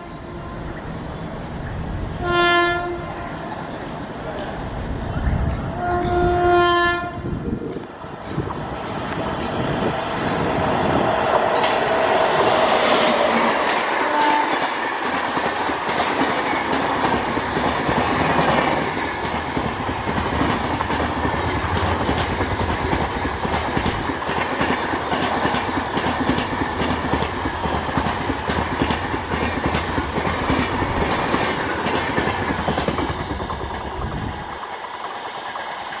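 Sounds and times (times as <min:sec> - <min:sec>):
train wheels clattering over rail joints: 0:11.2 - 0:36.0.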